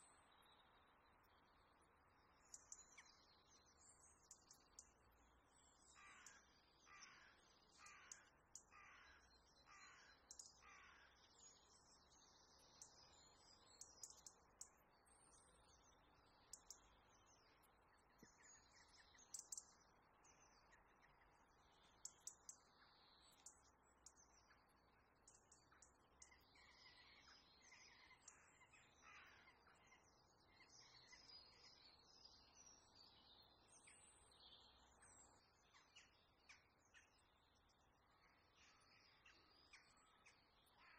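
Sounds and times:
bird chirps: 2.3s - 40.9s
faint sharp clicks: 4.2s - 5.0s, 10.3s - 10.6s, 13.8s - 14.8s, 16.5s - 16.9s, 19.3s - 19.7s, 22.0s - 22.7s, 23.3s - 24.2s, 25.2s - 26.4s.

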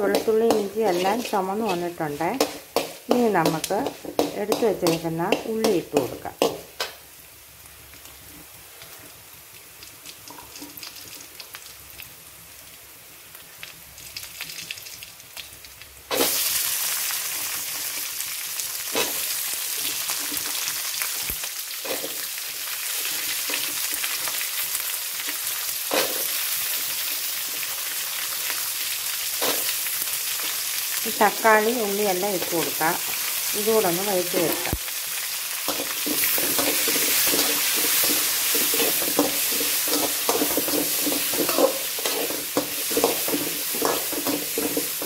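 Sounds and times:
spatula scraping metal pan: 0.0s - 6.6s, 35.7s - 45.0s
food sizzling in oil: 0.0s - 45.0s.

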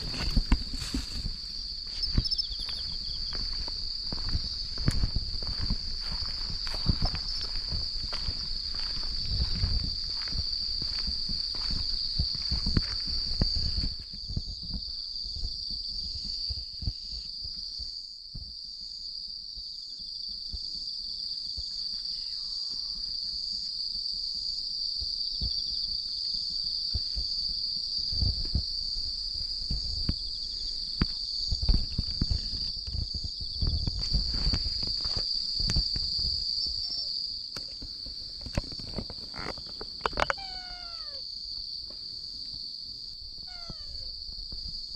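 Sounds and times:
footsteps on paving: 0.0s - 16.6s
crickets chirring: 0.0s - 44.9s.

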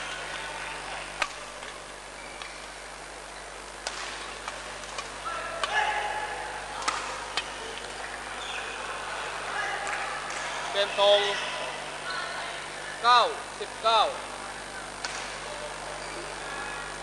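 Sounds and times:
sports hall murmur: 0.0s - 17.0s
racket hitting shuttlecock: 3.8s - 6.2s, 6.8s - 7.5s, 15.0s - 15.4s.

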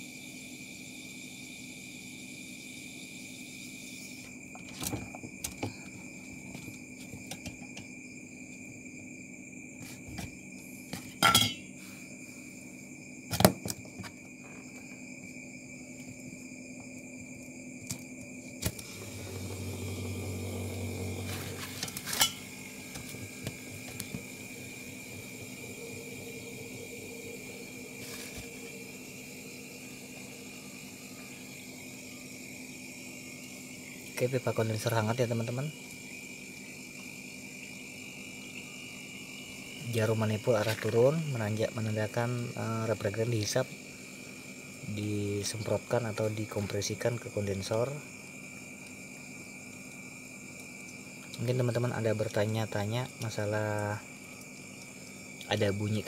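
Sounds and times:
metallic clinks and knocks: 11.2s - 11.7s
steady high hum: 14.5s - 51.2s.

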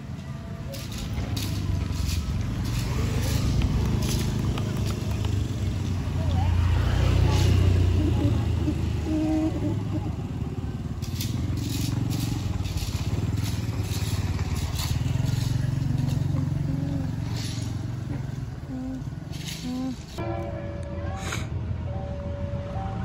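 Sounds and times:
motor engine running: 0.0s - 20.2s
scraping strokes: 0.7s - 5.1s, 11.0s - 20.2s.

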